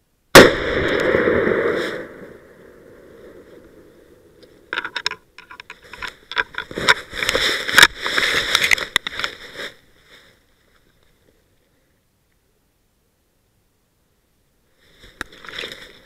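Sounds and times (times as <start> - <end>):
crackle of leaves and twigs: 0.8 - 11.8, 14.8 - 16.0
brush scraping: 5.8 - 10.4.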